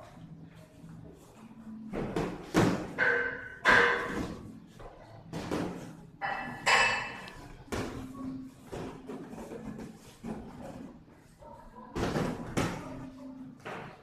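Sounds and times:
boxing gloves thudding: 1.9s - 3.0s.

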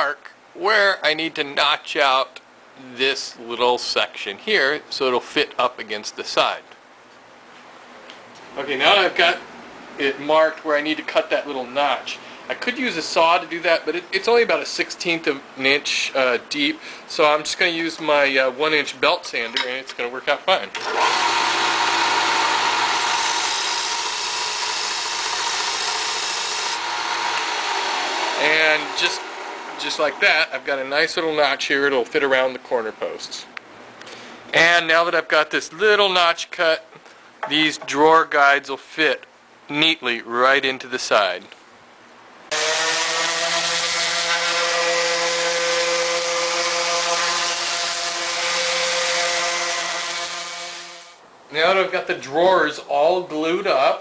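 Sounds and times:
belt sander motor hum: 20.8s - 30.2s, 42.5s - 51.0s
wood sanding hiss: 42.5s - 51.1s.

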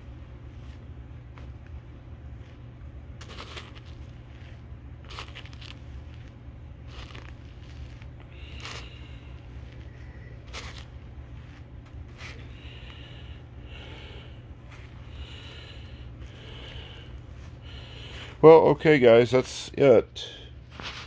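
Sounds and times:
brush scratching through fur: 0.4s - 13.1s, 14.6s - 15.2s, 16.2s - 18.4s.

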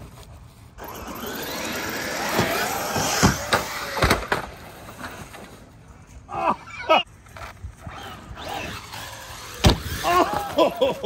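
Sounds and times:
electric motor whine: 0.8s - 4.0s.

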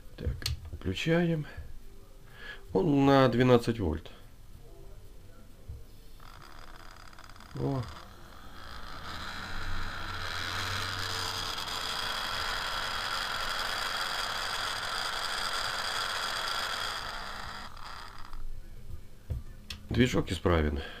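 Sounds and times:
fan motor whirring: 6.1s - 18.7s.

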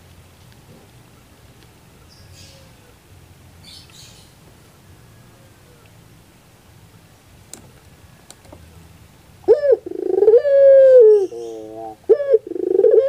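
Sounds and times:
dove cooing: 9.4s - 13.0s.

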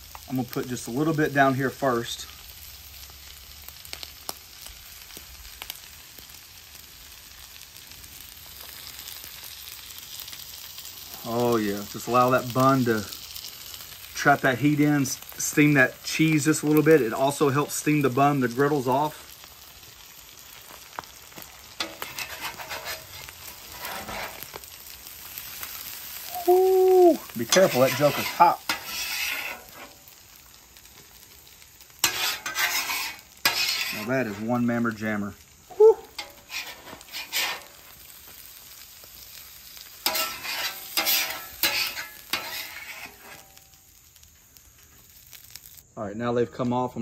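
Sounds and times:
meat sizzling on griddle: 0.0s - 47.0s
metal spatula scraping griddle: 21.7s - 26.2s, 27.3s - 30.1s, 32.0s - 34.6s, 36.2s - 38.0s, 39.8s - 43.7s.

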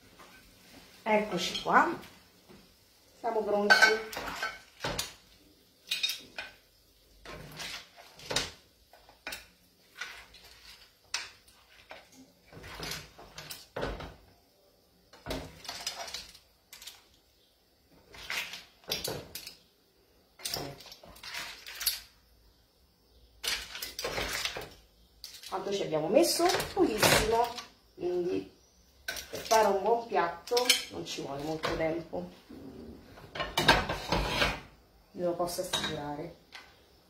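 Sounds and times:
spoon scraping and clinking on pan: 3.6s - 5.2s, 5.8s - 6.6s, 35.6s - 36.0s.

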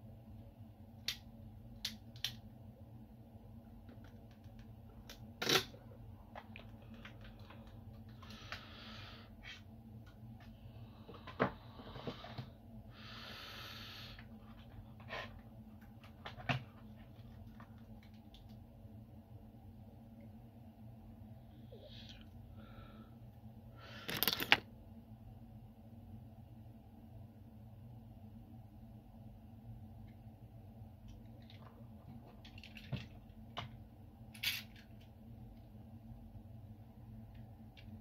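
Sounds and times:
faint steady hum: 0.0s - 38.0s
plastic objects clicking and knocking: 24.1s - 24.6s.

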